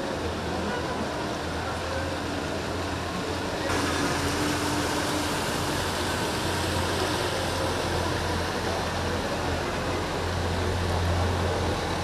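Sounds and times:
traffic noise: 0.0 - 12.0
rickshaw wading through water: 0.1 - 12.0.

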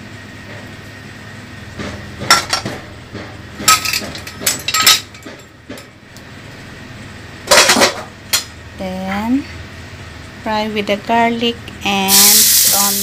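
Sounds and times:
dishes clattering: 7.5 - 8.0.

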